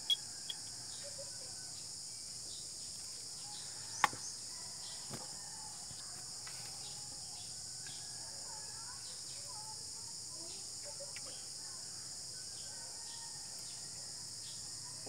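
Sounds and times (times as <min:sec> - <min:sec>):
high-pitched insect drone: 0:00.0 - 0:01.2.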